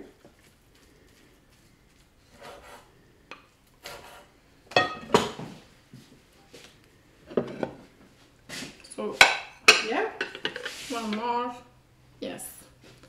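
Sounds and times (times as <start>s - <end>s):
plates and spoon clinking: 4.7s - 5.4s.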